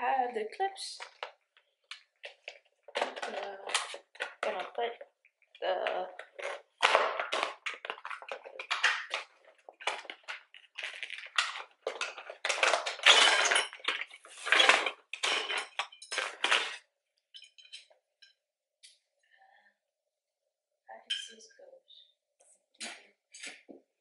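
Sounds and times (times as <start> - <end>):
hard items clinking: 1.0 - 4.9, 5.7 - 18.0
cardboard packaging crinkling: 7.2 - 13.0.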